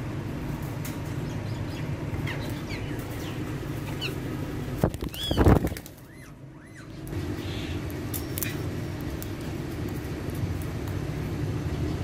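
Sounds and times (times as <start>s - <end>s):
steady low hum: 0.0s - 12.0s
parakeets chirping: 1.2s - 4.4s, 5.0s - 8.8s
wing flapping: 2.4s - 6.2s
parakeet squawk: 5.1s - 7.8s.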